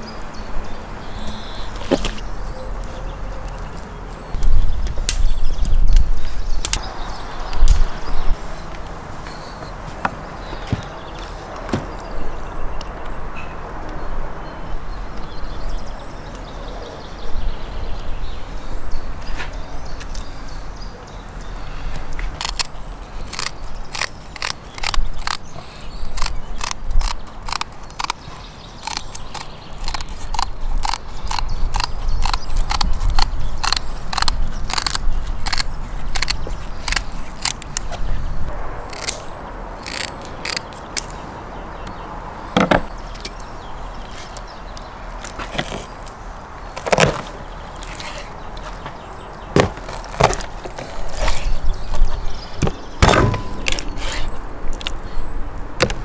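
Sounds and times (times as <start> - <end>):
kitchen shears snipping: 22.2 - 38.1.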